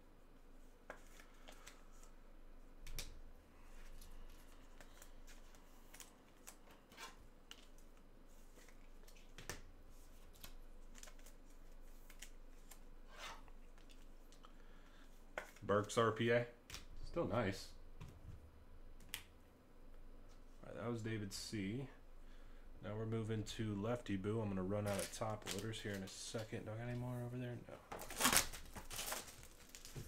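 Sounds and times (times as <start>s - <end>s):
cards rustling: 0.8s - 2.2s, 2.8s - 12.9s, 24.8s - 26.6s, 27.9s - 30.0s.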